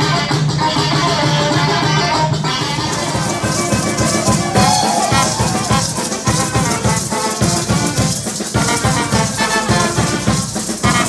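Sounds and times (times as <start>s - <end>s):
saxophone: 0.0s - 11.0s
trumpet: 0.0s - 11.0s
maracas shaking: 2.0s - 11.0s
drum kit beat: 2.4s - 11.0s.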